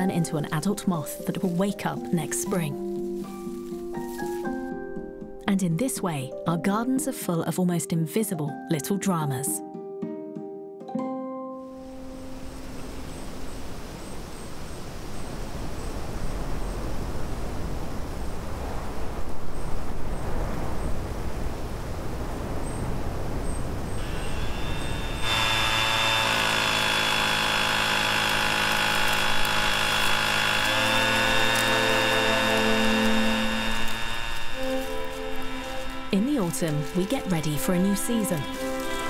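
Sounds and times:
leaf blower whining: 0.0 - 5.1, 23.9 - 39.0
wind rushing through trees: 11.8 - 25.2.

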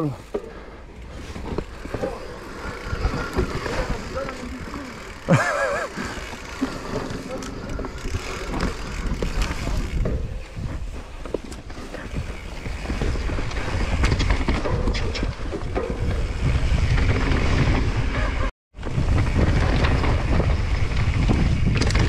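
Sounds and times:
bike rattling and clicking: 0.0 - 22.0
tyres rolling over dirt: 0.9 - 22.0
wind buffeting microphone: 7.6 - 22.0.

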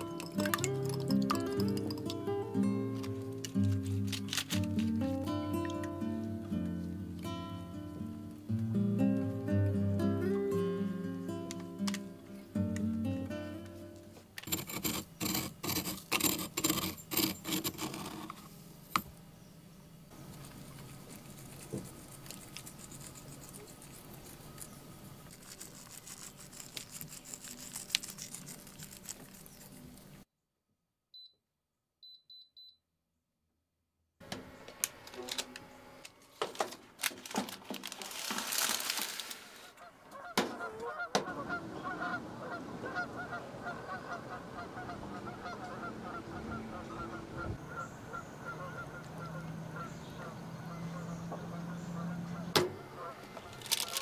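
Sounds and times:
faint high beeps: 32.0 - 32.8
geese honking: 39.6 - 54.0.

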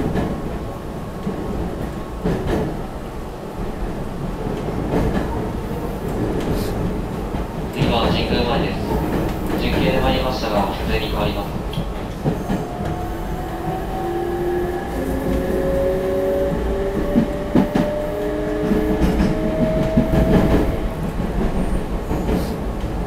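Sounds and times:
rail joints clacking: 0.0 - 3.0, 3.6 - 23.0
train wheels rumbling: 0.0 - 23.0
train inverter whine: 7.7 - 22.0.

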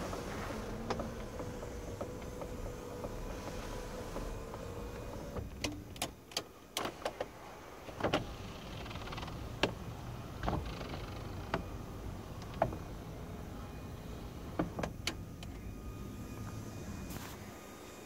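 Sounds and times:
roof mechanism clicks and knocks: 0.0 - 13.0, 14.4 - 15.6.

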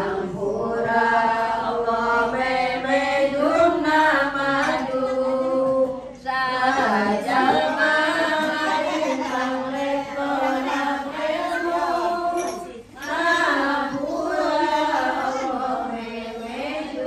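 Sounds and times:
women and girls chanting: 0.0 - 17.0.

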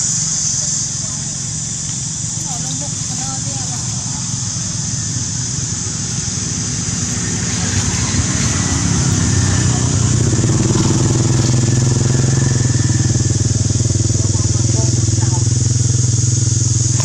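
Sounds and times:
engine running: 0.0 - 17.0
steady high hiss: 0.0 - 17.0.

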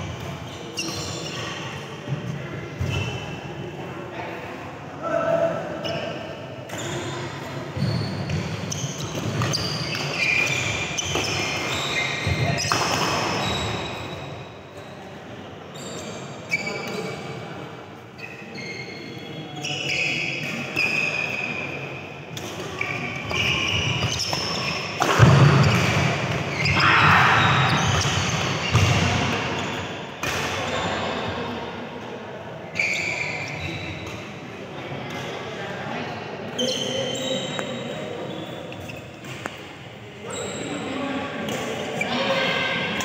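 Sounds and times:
shoes squeaking on court: 0.0 - 3.4, 5.8 - 14.5, 15.7 - 17.3, 18.2 - 31.1, 32.7 - 34.4, 36.5 - 43.0
rackets hitting shuttlecock: 8.3 - 13.9, 22.3 - 26.6, 30.2 - 30.6.

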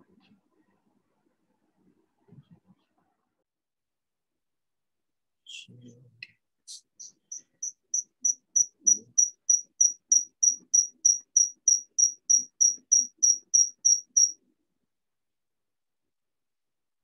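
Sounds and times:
high-pitched electronic beeps: 7.3 - 14.3.

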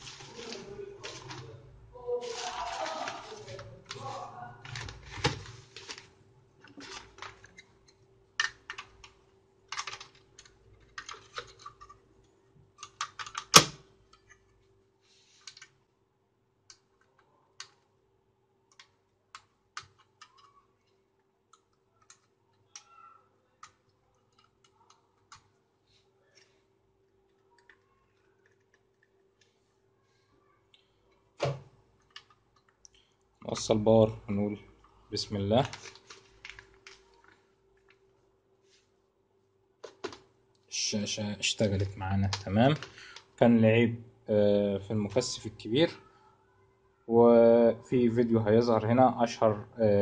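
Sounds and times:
hands rustling: 0.0 - 6.1.

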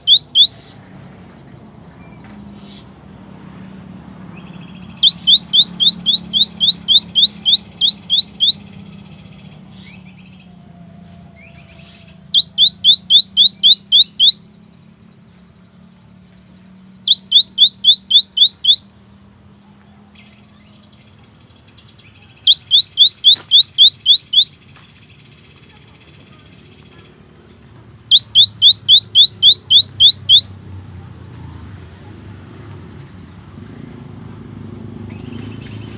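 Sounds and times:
bird singing rising whistles: 0.0 - 0.7, 4.4 - 10.5, 11.4 - 14.5, 22.5 - 25.3, 28.1 - 30.5.

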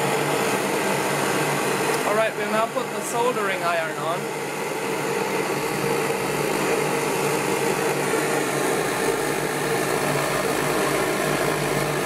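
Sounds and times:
blowtorch hissing: 0.0 - 12.0.

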